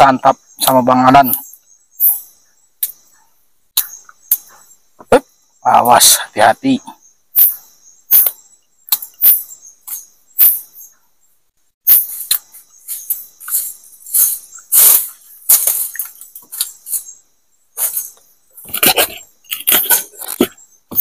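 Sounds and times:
crickets droning: 0.0s - 21.0s
sharp snaps and crackles: 17.8s - 21.0s.

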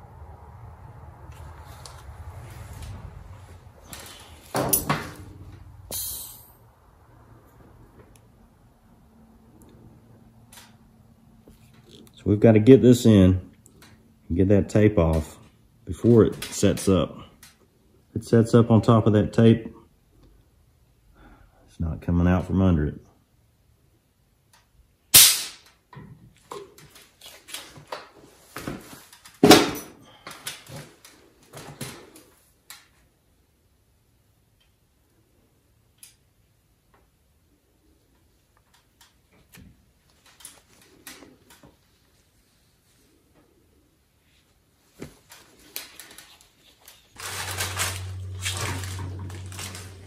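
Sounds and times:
low electrical hum: 0.0s - 50.0s
handling rustles and scrapes: 44.2s - 50.0s
masking tape peeling: 45.2s - 50.0s.

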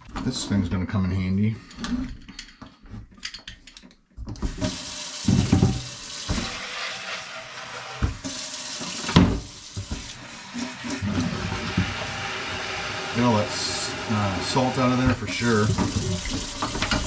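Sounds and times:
water running into plastic tank: 4.4s - 17.0s.

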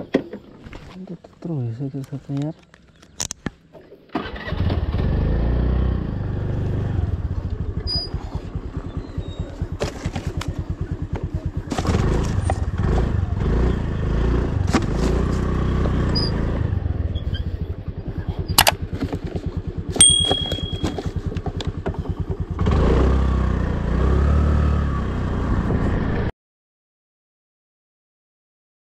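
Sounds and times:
scooter engine idling and revving: 4.2s - 26.3s
sharp click: 20.0s - 21.1s.

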